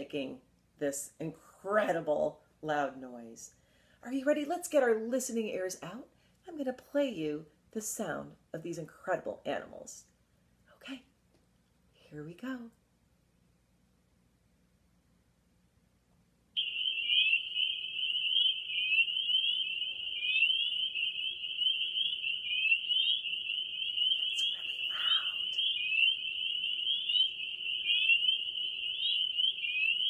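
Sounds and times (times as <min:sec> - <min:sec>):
chorus of peeping frogs: 0:16.6 - 0:30.0.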